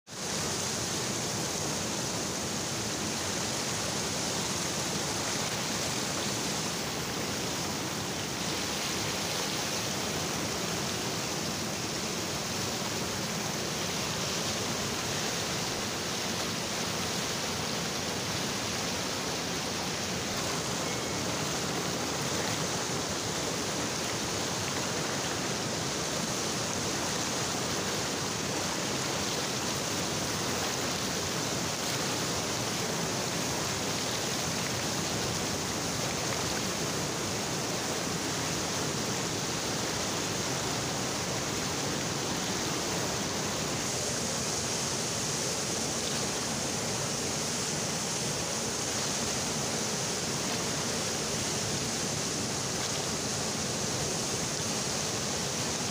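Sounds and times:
river rapids rushing: 0.1s - 55.9s.

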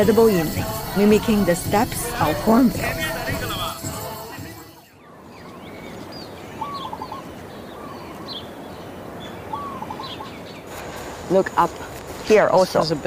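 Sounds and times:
higher bird chirps: 4.8s - 10.7s
birds whistling calls: 5.0s - 10.7s
forest ambience hiss: 5.4s - 13.0s.

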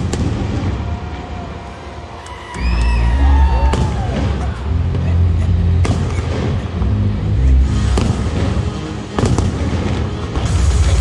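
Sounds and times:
fireworks bursting with bangs: 0.0s - 1.3s, 5.7s - 6.8s, 7.7s - 11.0s
music with heavy bass: 2.8s - 11.0s.

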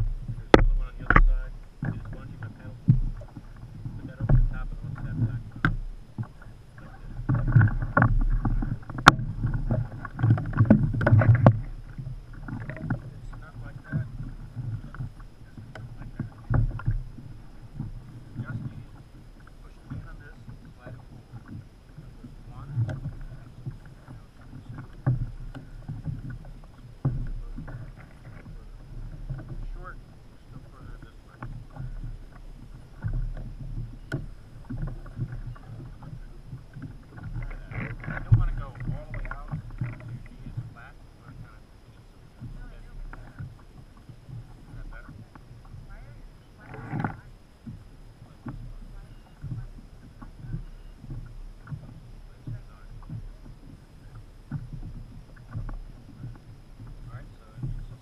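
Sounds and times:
knocks on kayak hull: 0.0s - 20.3s, 22.2s - 29.8s, 31.0s - 41.6s
wind rumble on microphone: 0.0s - 58.0s.

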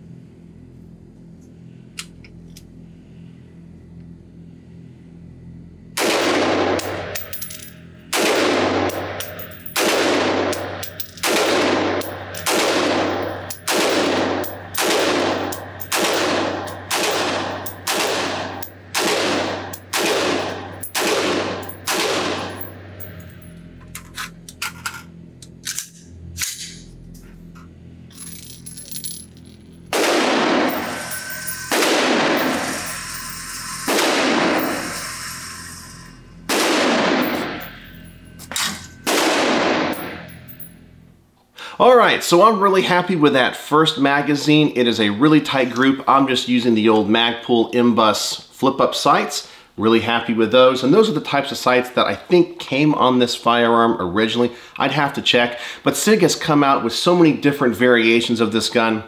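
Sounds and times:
gunshots echoing indoors: 6.0s - 7.2s, 8.1s - 23.2s, 29.9s - 31.1s, 31.7s - 32.8s, 36.5s - 37.6s.

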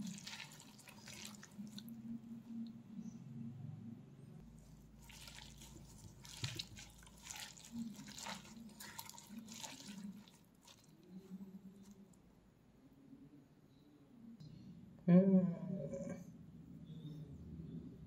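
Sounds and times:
wet squelching of mixed food: 0.0s - 2.8s, 4.4s - 12.2s
leafy rustling: 4.5s - 11.4s.

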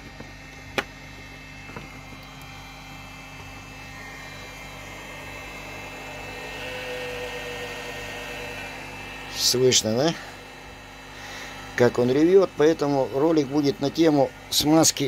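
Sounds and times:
cooling fan whining: 0.0s - 15.0s
steady electrical hum: 0.0s - 15.0s.

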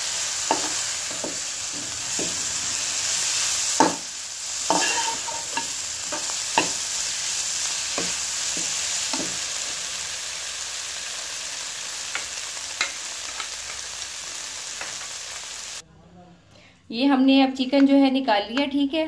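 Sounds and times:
chicken sizzling in oil: 0.0s - 15.8s
metal spatula scraping a pan: 0.4s - 9.6s.

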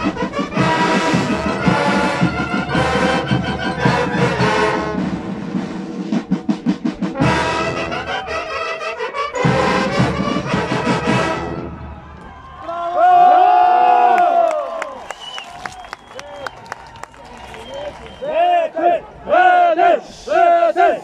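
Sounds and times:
marching band playing: 0.0s - 12.2s.

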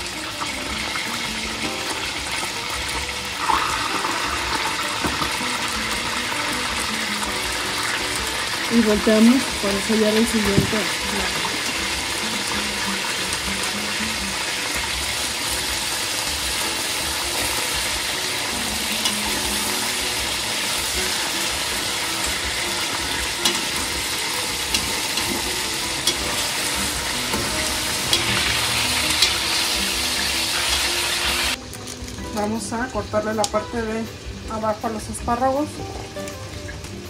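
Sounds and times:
chicken sizzling in oil: 0.0s - 37.0s
metal tongs clicking on pot: 23.4s - 23.9s, 24.6s - 26.6s.

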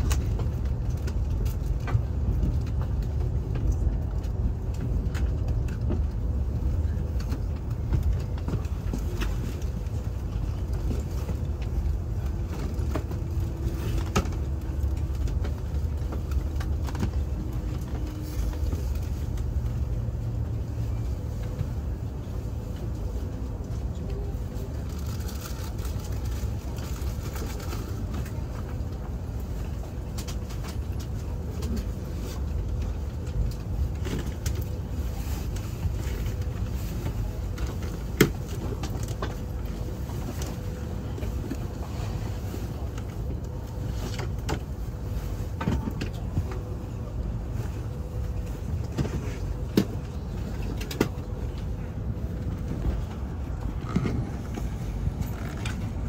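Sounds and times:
train cabin rumble: 0.0s - 56.0s.

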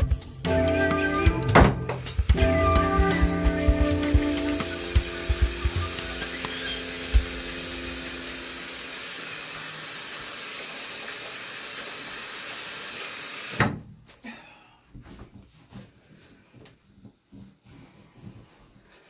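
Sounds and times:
sink tap running: 1.5s - 13.6s.

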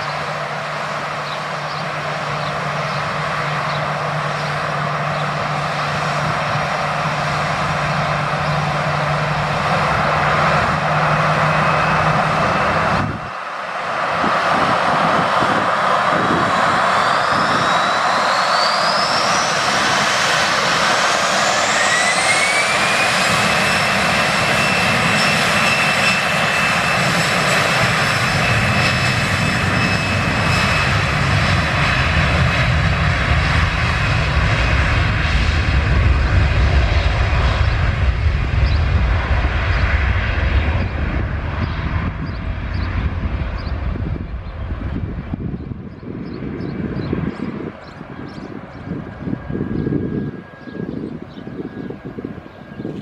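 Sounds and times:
jet engines whining: 0.0s - 53.0s
low engine rumble: 29.4s - 53.0s.

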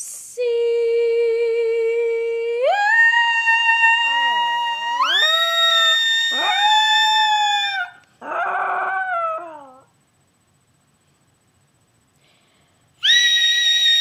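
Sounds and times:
dog howling: 3.6s - 9.9s.

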